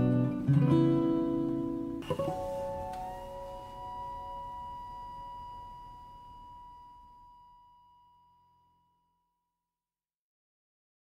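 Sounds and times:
acoustic guitar note ringing: 0.0s - 8.4s.

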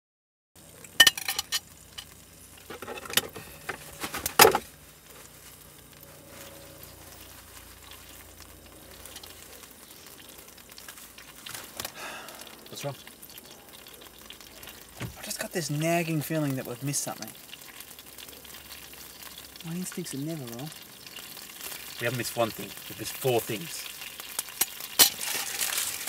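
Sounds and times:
faint frying pan sizzle: 0.6s - 26.0s
fork and plate clattering: 1.0s - 2.1s, 2.7s - 4.6s.

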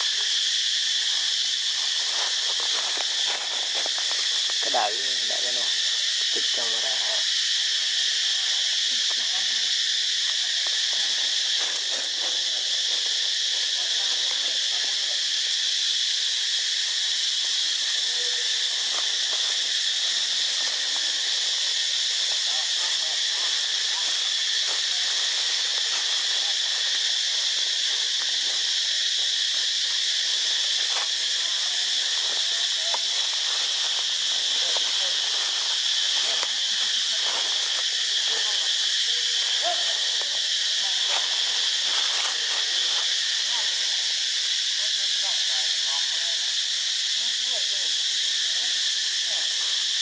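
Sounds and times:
cicadas chorus: 0.0s - 50.0s.

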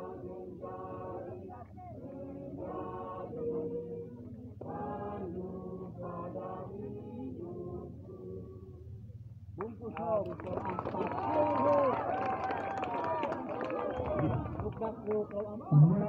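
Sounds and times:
men's vocal group singing: 0.0s - 8.6s.

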